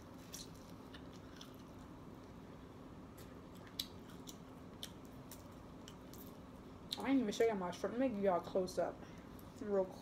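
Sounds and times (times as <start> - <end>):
wet chewing clicks and smacks: 3.2 - 7.1.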